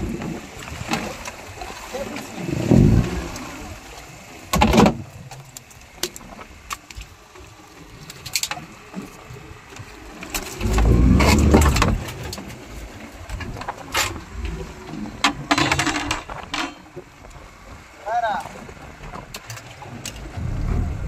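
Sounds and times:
heavy low thumping: 20.3 - 21.0.

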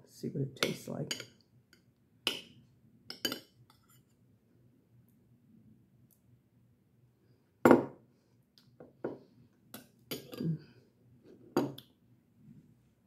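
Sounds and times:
metal spoon clinking against bowl: 1.1 - 1.4, 3.1 - 3.6, 9.8 - 10.4.

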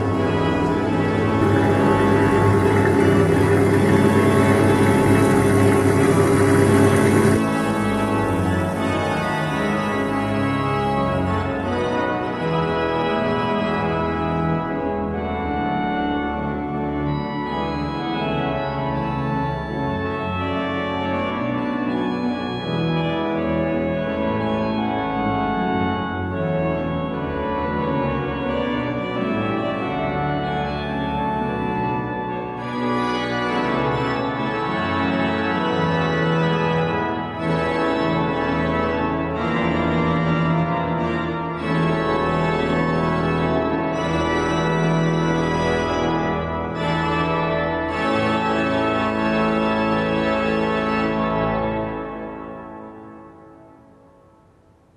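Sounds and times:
organ playing slow chords: 0.0 - 54.4.

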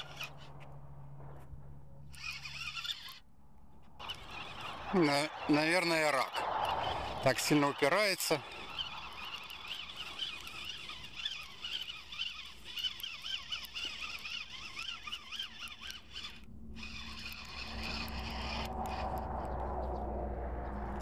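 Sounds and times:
fishing reel gears whining: 0.0 - 0.6, 2.1 - 3.3, 4.0 - 21.0
steady low rumble: 0.0 - 2.2, 15.8 - 21.0.

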